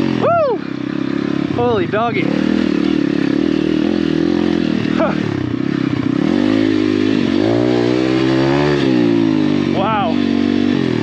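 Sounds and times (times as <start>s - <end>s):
motorbike engine revving under load: 0.0s - 11.0s.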